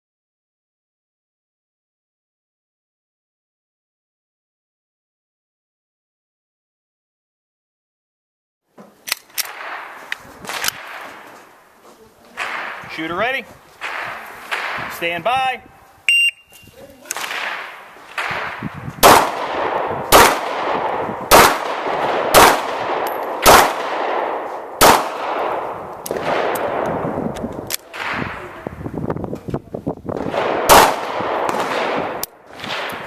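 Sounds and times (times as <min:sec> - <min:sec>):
pistol shots echoing: 0:09.4 - 0:11.5, 0:12.4 - 0:15.4, 0:17.1 - 0:28.7, 0:30.2 - 0:33.0.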